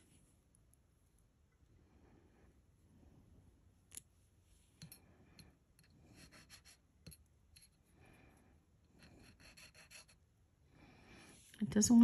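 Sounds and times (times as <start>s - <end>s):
light scratching on stone: 8.9s - 10.2s.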